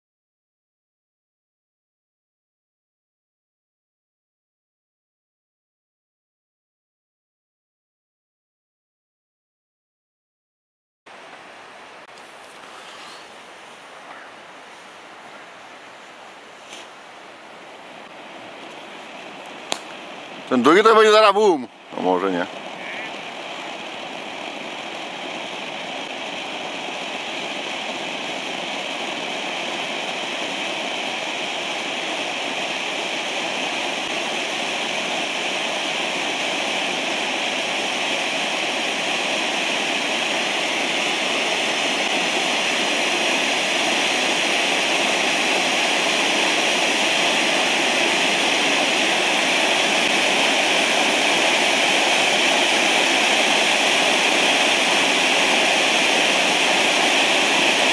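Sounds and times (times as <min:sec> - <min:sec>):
firework fountains hissing: 0:12.0 - 0:57.9.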